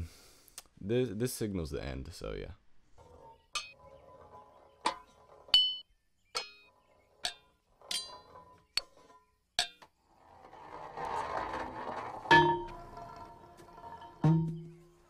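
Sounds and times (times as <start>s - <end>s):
golf ball clinking on metal pipes: 4.8s - 10.0s.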